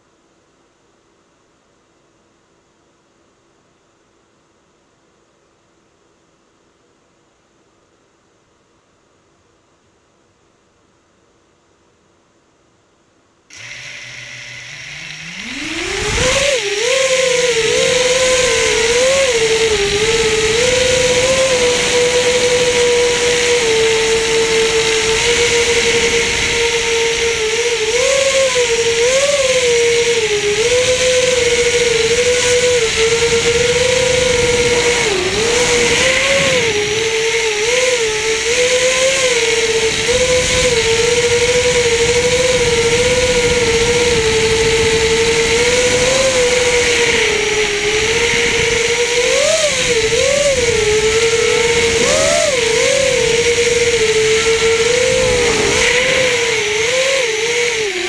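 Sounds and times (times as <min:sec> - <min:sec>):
drone motors whining: 0:13.5 - 0:58.0.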